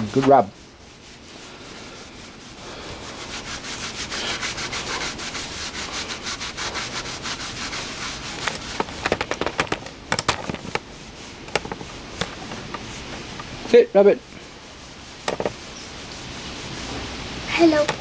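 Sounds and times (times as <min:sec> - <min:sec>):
cloth rubbing on wood: 0:00.0 - 0:18.0
sharp clicks and knocks: 0:08.4 - 0:10.9, 0:15.2 - 0:15.6.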